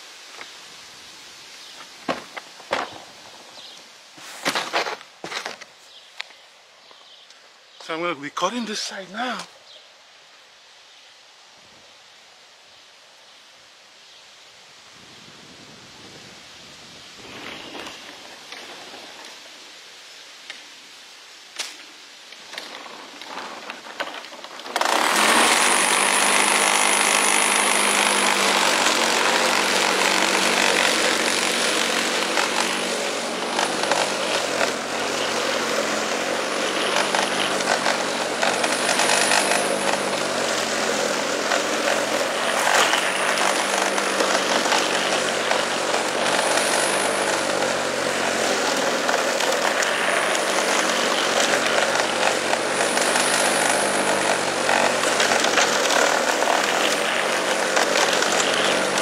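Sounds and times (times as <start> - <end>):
electric lawn mower running: 22.6 - 59.0.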